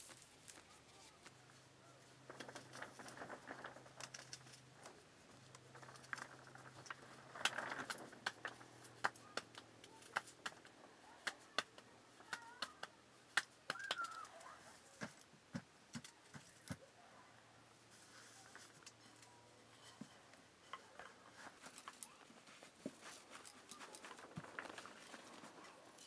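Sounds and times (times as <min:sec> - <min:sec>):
hands patting dough: 0:00.0 - 0:16.8.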